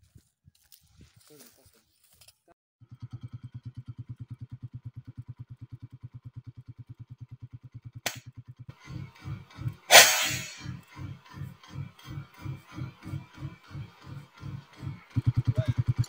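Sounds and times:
air rifle shot: 9.9s - 10.7s
sharp click: 9.9s - 10.7s.

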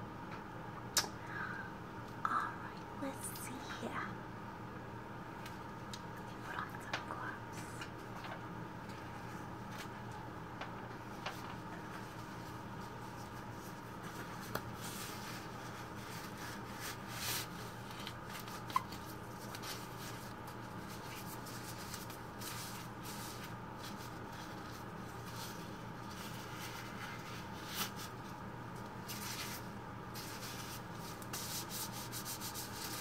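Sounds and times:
faint steady hum: 0.0s - 33.0s
plastic gloves crinkling: 11.0s - 33.0s.

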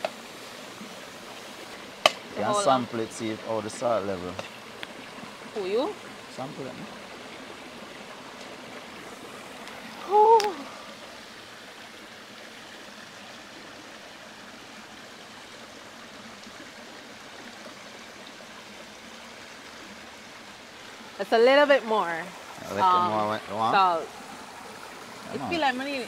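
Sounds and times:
stream flowing over stones: 0.0s - 26.0s
person humming: 10.0s - 10.8s.

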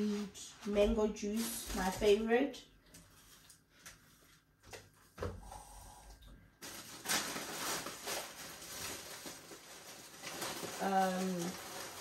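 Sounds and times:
plastic bag rustling and crinkling: 0.0s - 3.5s, 6.6s - 12.0s.

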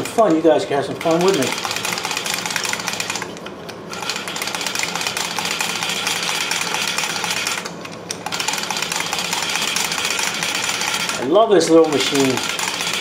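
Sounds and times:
valve lapping tool grinding: 3.9s - 13.0s.

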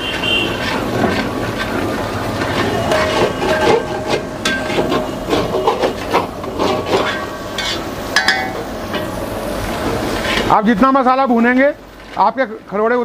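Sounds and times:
spatula scraping steel pan: 0.0s - 9.2s, 9.8s - 10.6s
paste frying: 0.0s - 13.0s.

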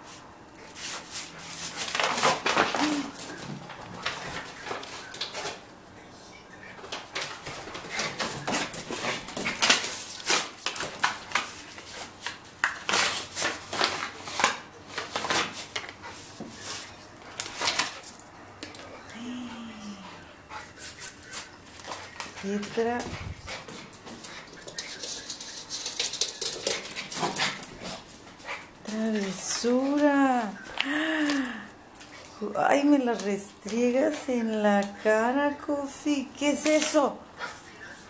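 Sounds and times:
paper crinkling and tearing: 0.7s - 5.6s, 7.0s - 15.9s.

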